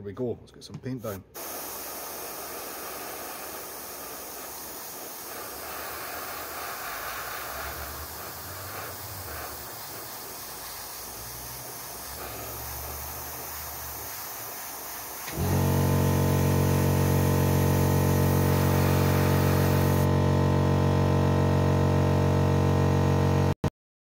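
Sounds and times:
airbrush hissing: 1.0s - 20.1s.

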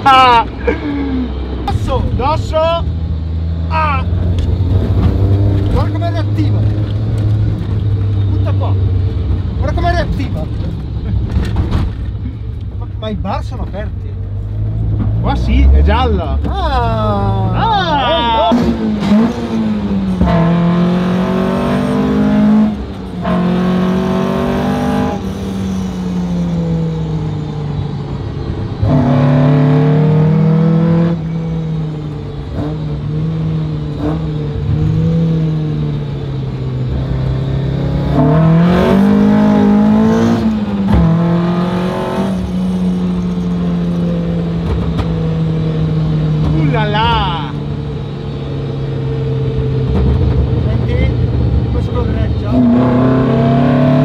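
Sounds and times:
car engine accelerating in cabin: 0.6s - 54.0s.

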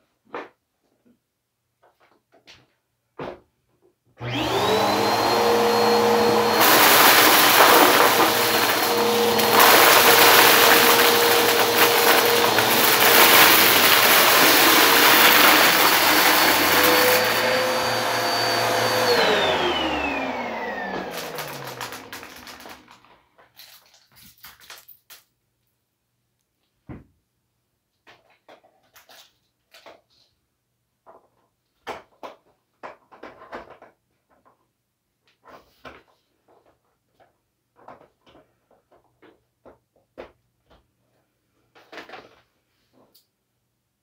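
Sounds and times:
vacuum sucking up debris: 4.2s - 23.0s
vacuum cleaner motor whining: 4.2s - 23.1s.

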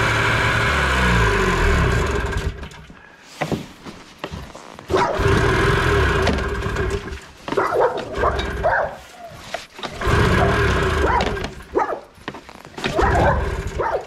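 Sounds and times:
dog whining and yipping: 7.6s - 9.7s.

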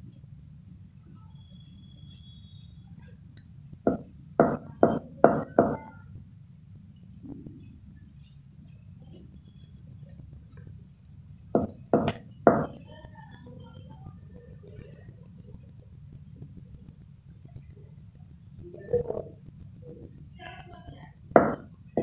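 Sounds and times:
knife knocking on a wooden board: 3.9s - 5.9s, 11.6s - 12.8s, 21.4s - 22.0s.

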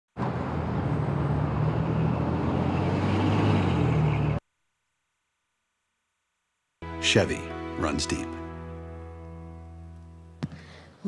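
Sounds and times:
street traffic with engine hum: 0.1s - 4.4s.

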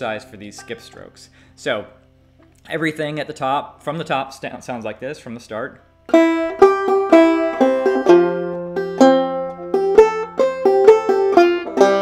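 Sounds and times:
banjo plucked notes: 0.0s - 1.4s, 6.0s - 12.0s.

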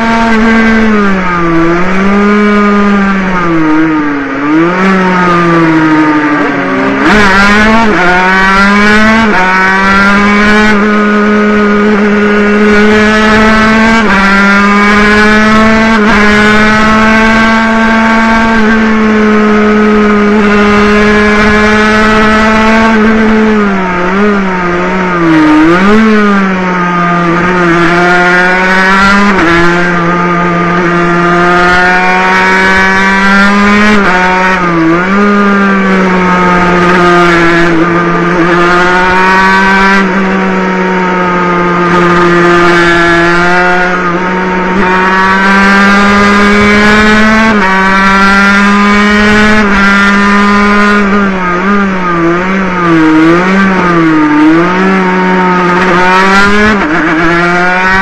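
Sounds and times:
two-stroke motorcycle engine whine: 0.0s - 58.0s.

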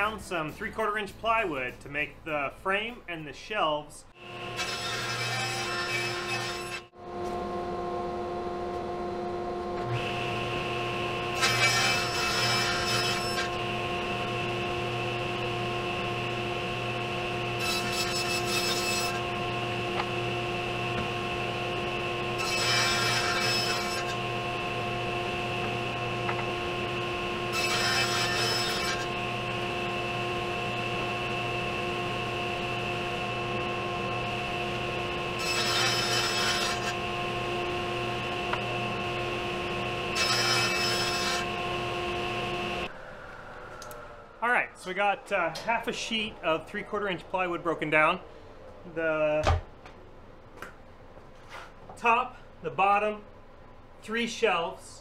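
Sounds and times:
table saw motor whine: 4.2s - 44.8s
saw blade rasping through wood: 4.6s - 6.8s, 11.4s - 13.6s, 22.4s - 24.2s, 27.5s - 29.1s, 35.4s - 37.0s.

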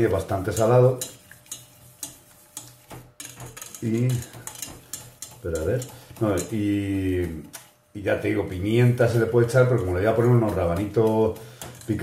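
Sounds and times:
person speaking: 0.0s - 1.2s, 3.6s - 4.6s, 5.3s - 12.0s
whisk clicking against pan: 0.0s - 12.0s.

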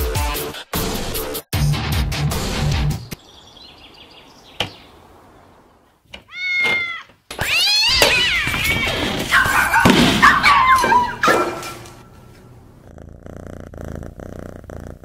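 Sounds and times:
kittens meowing: 6.2s - 11.2s.

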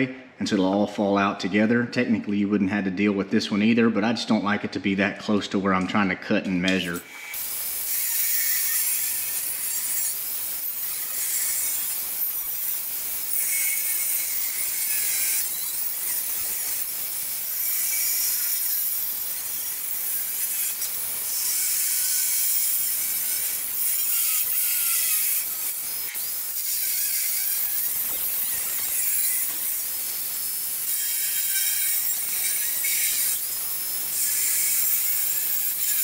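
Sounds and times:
angle grinder cutting steel: 6.7s - 36.0s.

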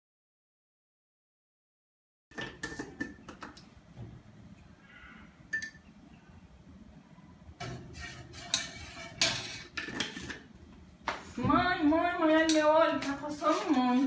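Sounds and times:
spoon clinking in metal saucepan: 5.5s - 5.9s.

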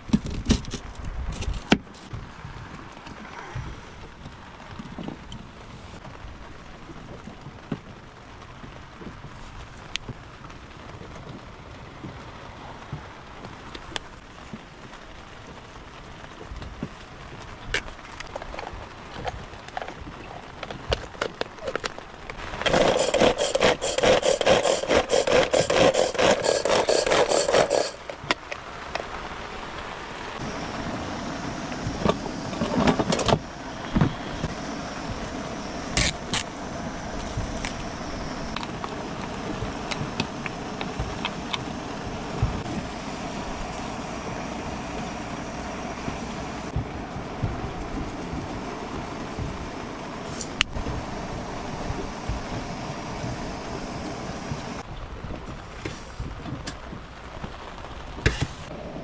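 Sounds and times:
steady hum: 22.5s - 28.2s, 30.1s - 54.9s.

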